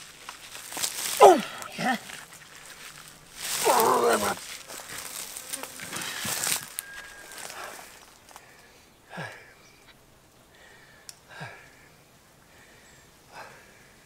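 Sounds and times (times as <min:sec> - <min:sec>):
rough scraping: 0:00.0 - 0:08.0
man grunting and groaning: 0:01.1 - 0:02.1, 0:03.5 - 0:04.4.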